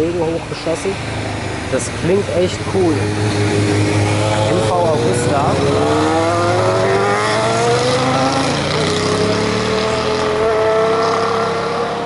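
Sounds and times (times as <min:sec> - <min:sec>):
motorcycle engine accelerating: 0:01.0 - 0:12.0
second motorcycle passing: 0:02.6 - 0:12.0.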